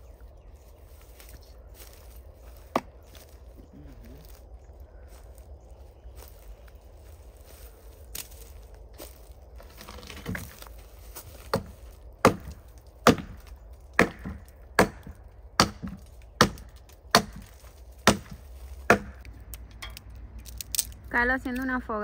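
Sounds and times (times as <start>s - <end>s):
hatchet chopping a branch: 2.6s - 2.9s, 11.4s - 21.0s.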